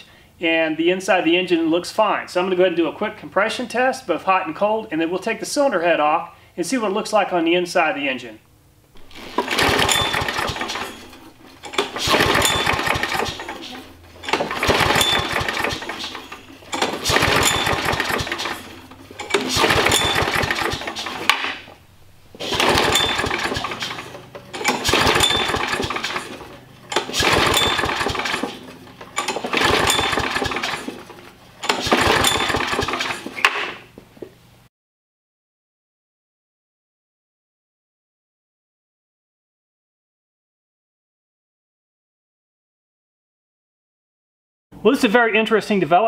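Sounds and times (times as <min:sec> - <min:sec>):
recoil starter cord pulls: 0:09.0 - 0:33.8
mower engine cranking: 0:09.0 - 0:34.0.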